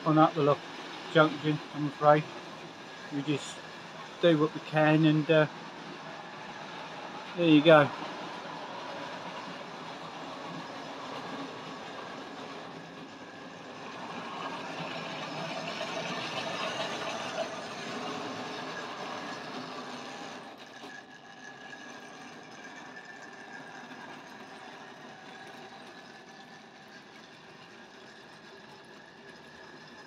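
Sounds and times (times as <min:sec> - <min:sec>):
model train motor whirring: 0:00.0 - 0:30.0
wheels clattering on rails: 0:00.0 - 0:30.0.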